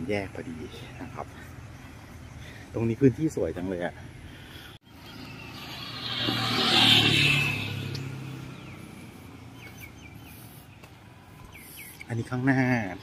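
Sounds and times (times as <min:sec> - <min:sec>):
motor scooter passing by: 0:05.0 - 0:09.8.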